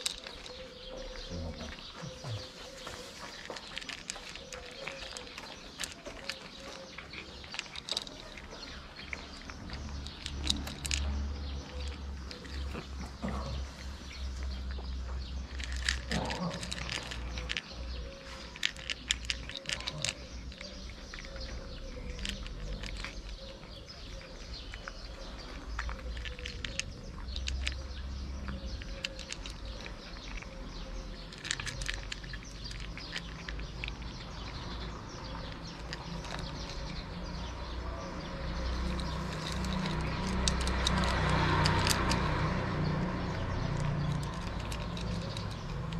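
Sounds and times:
cat crunching dry kibble: 0:00.0 - 0:45.9.

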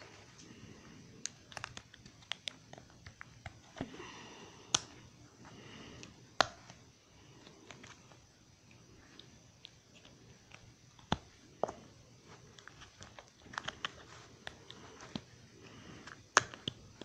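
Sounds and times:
plastic bricks snapping together: 0:16.0 - 0:17.0.

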